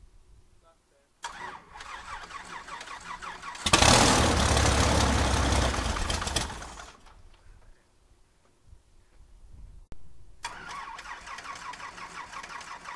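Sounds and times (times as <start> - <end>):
starter cranking engine: 1.2 - 7.1, 10.4 - 12.9
aircraft engine running: 3.7 - 7.0.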